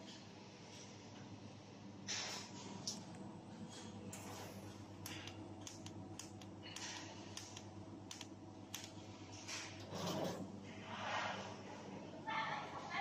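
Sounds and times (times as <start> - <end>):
welding set humming: 0.0 - 13.0
sharp welding clicks: 5.0 - 9.1.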